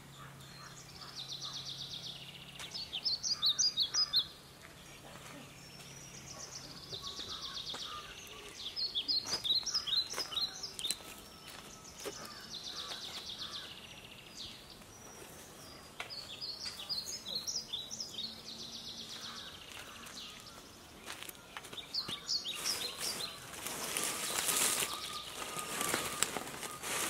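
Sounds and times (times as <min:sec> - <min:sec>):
small birds chirping: 0:00.0 - 0:27.0
footsteps through dry leaves: 0:19.1 - 0:27.0.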